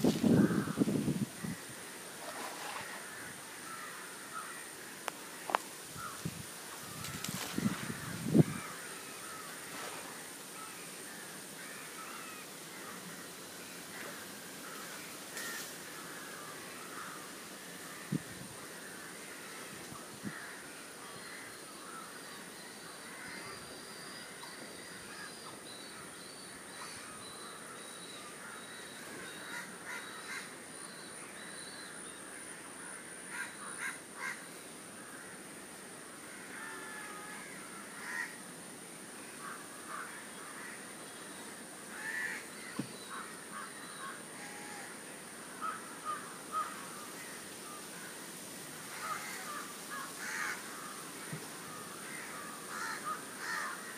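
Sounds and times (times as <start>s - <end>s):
high-pitched hiss: 0.0s - 53.9s
crows cawing: 0.3s - 0.8s, 2.8s - 5.0s, 7.4s - 9.6s, 13.9s - 17.3s, 17.9s - 20.7s, 29.4s - 30.5s, 32.8s - 35.4s, 36.2s - 38.4s, 39.4s - 40.8s, 41.9s - 44.9s, 45.6s - 47.4s, 48.9s - 53.9s
birds calling: 39.4s - 44.9s.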